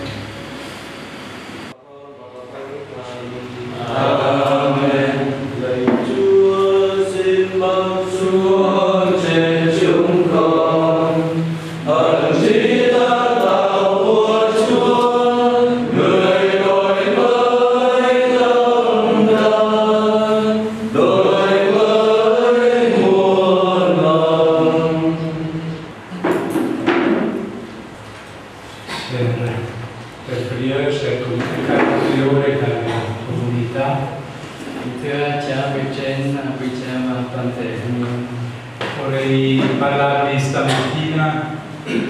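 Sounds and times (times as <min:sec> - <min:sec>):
group singing a chant: 0:03.7 - 0:27.6.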